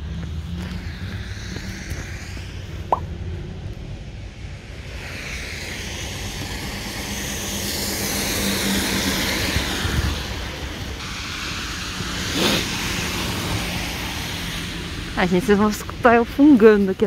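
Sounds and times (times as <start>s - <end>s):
tyres hissing on wet road: 0.0s - 2.8s, 4.4s - 17.0s.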